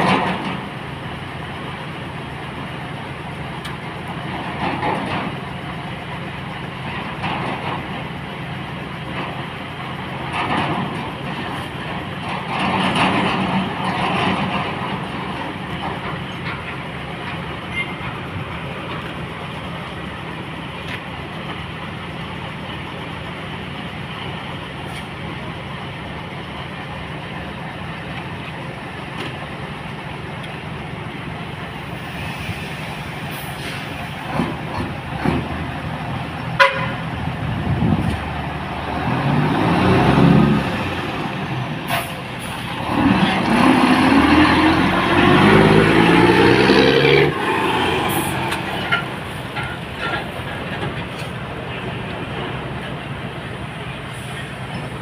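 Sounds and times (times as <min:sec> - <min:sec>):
diesel truck engine revving: 0:31.7 - 0:55.0.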